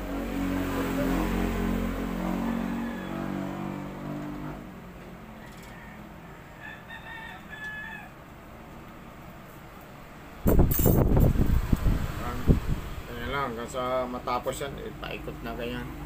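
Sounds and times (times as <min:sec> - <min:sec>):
rooster crowing: 0:02.1 - 0:04.2, 0:05.3 - 0:08.4
sharp clatter: 0:10.5 - 0:11.4.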